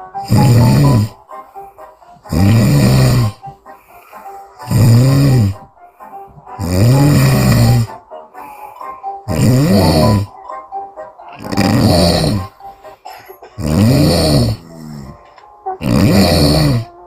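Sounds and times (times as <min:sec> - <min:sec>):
woman snoring loudly: 0:00.1 - 0:01.2, 0:02.3 - 0:03.5, 0:04.6 - 0:05.7, 0:06.6 - 0:08.0, 0:09.2 - 0:10.4, 0:11.4 - 0:12.6, 0:13.6 - 0:15.2, 0:15.8 - 0:17.0.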